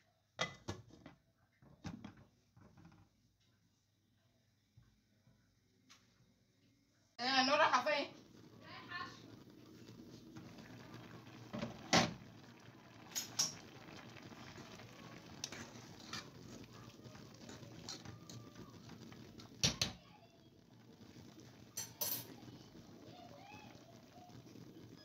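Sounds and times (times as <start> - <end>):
water bubbling: 7.8 - 25.0.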